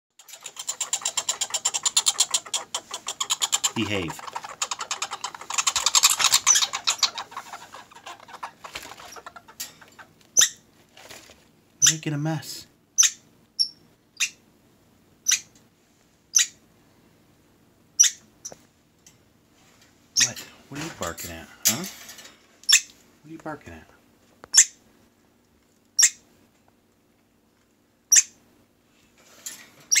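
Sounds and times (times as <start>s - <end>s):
squirrels chattering: 0.2s - 10.6s, 20.2s - 20.4s, 24.5s - 24.8s, 26.0s - 26.2s, 28.1s - 28.4s.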